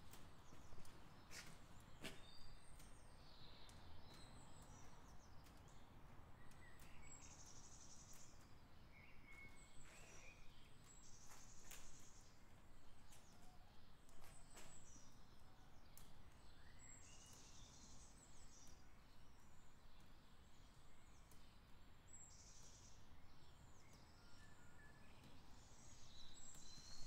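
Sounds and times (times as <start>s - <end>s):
birds chirping: 0.0s - 13.4s
low steady background noise: 0.0s - 27.0s.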